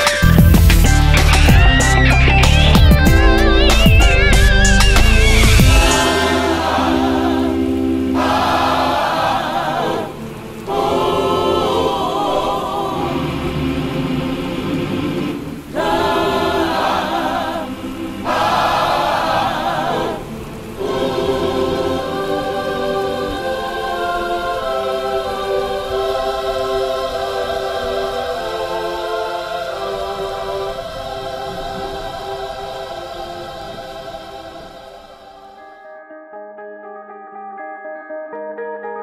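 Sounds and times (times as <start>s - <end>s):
choir singing: 0.0s - 35.7s.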